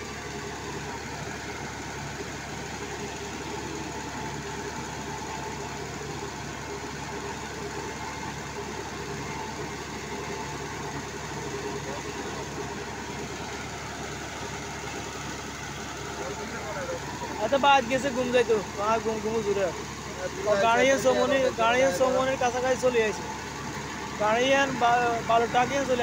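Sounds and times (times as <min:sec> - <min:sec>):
small stationary engine running: 0:00.0 - 0:26.0.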